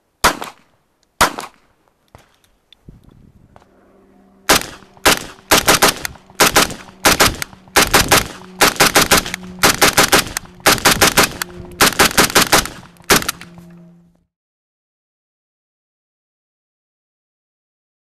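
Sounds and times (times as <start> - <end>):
rifle shots: 0.2 - 1.6, 4.5 - 13.5.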